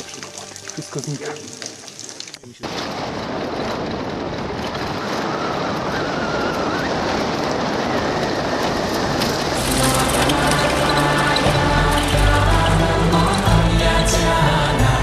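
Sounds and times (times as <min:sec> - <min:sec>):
music: 0:00.0 - 0:01.9, 0:09.6 - 0:15.0
vehicle engine and road noise: 0:07.1 - 0:15.0
cabin rattling: 0:08.8 - 0:15.0.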